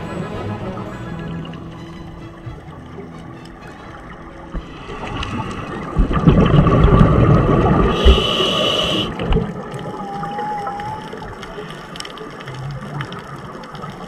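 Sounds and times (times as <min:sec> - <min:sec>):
diver's exhaled bubbles underwater: 0:04.6 - 0:14.0.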